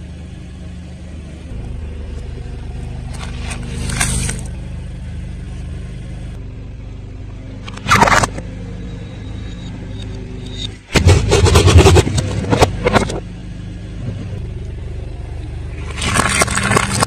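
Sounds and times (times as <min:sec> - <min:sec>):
car engine running: 0:00.0 - 0:17.0
objects crushed under tyre: 0:15.8 - 0:17.0.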